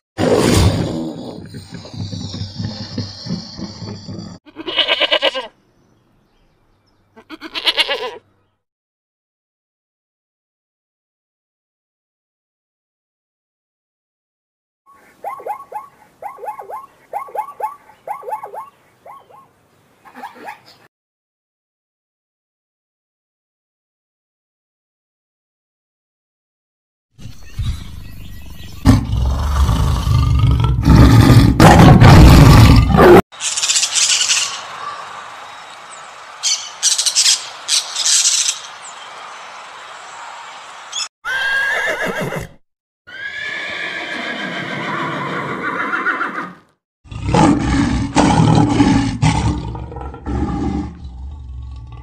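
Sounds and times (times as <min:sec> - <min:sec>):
lions growling and grunting: 0:00.2 - 0:04.4, 0:28.8 - 0:33.2, 0:47.1 - 0:52.0
toucan calls: 0:14.9 - 0:20.8
tiger roaring: 0:28.8 - 0:33.2, 0:47.1 - 0:52.0.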